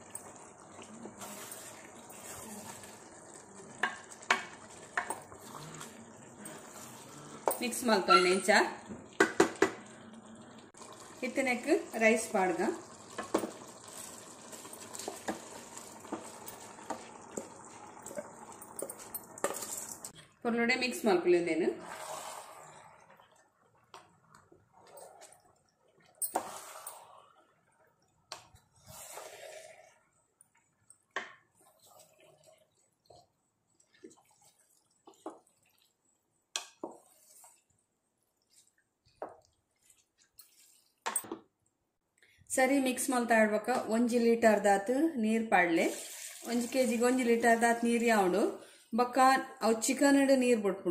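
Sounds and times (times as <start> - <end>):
sauce sizzling in a pot: 0.0 - 20.2, 20.8 - 24.9, 26.3 - 27.7, 28.4 - 41.0, 45.5 - 50.0
spatula scraping a pot: 1.1 - 3.1, 5.0 - 8.6, 21.8 - 23.1, 26.3 - 27.2, 28.8 - 30.0, 31.5 - 35.9, 36.6 - 37.8, 38.4 - 41.0.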